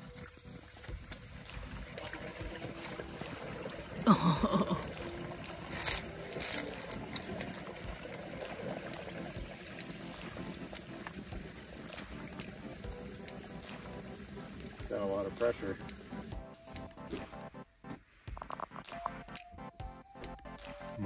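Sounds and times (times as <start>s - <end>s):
waste water rushing through hose: 0.0s - 16.8s
water gurgling: 0.0s - 17.7s.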